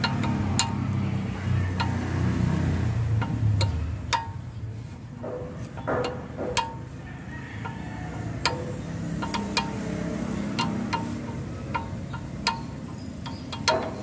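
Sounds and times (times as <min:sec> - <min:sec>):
wrench clinking against nut: 0:10.4 - 0:14.0.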